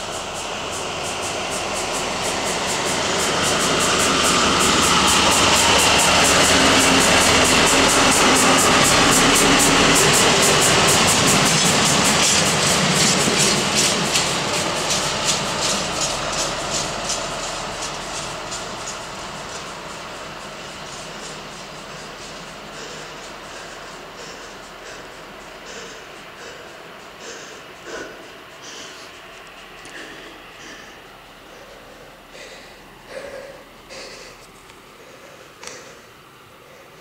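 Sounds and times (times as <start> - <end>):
wheels clicking over rail joints: 0.0 - 36.8
locomotive engine drone: 0.0 - 37.0.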